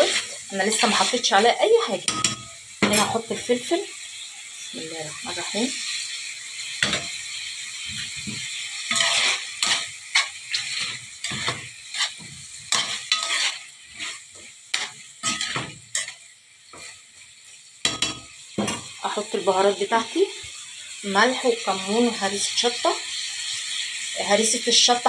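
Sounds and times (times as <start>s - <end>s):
metal spoon scraping a pan: 0.0s - 3.5s, 6.7s - 17.0s, 17.8s - 19.1s
food sizzling in a pan: 0.0s - 25.0s.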